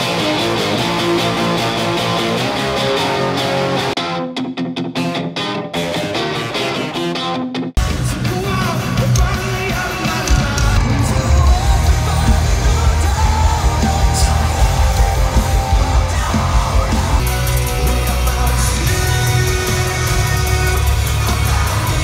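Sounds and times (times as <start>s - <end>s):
distorted electric guitars: 0.0s - 22.0s
drums: 0.0s - 22.0s
shouted and sung vocals: 8.2s - 22.0s.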